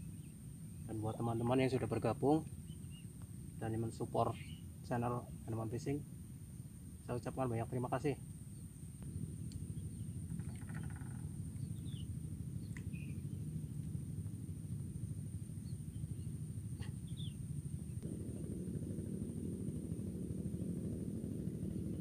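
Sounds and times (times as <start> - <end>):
steady low rumble: 0.0 - 22.0
high-pitched insect drone: 3.0 - 22.0
short bird chirps: 16.8 - 17.4.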